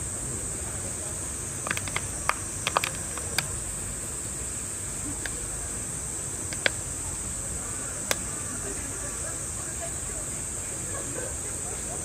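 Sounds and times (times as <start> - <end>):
insects droning: 0.0 - 12.0
sharp clicks and taps: 1.6 - 3.5, 6.5 - 6.8.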